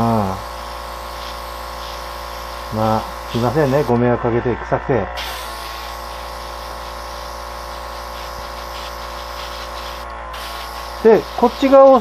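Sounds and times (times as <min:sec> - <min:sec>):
airbrush spraying hiss: 0:00.0 - 0:03.9, 0:05.2 - 0:12.0
small electric motor hum: 0:00.0 - 0:12.0.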